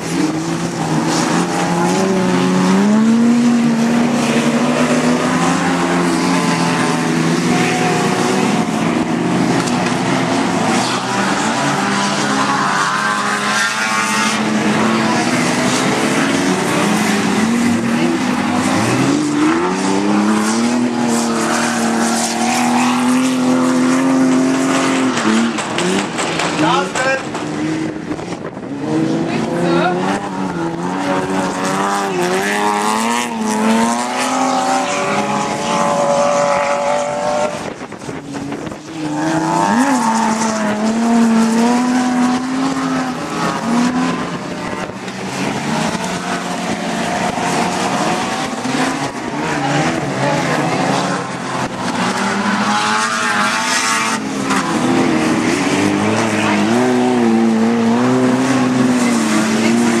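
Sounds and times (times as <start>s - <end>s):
racing car engines revving: 0.0s - 60.0s.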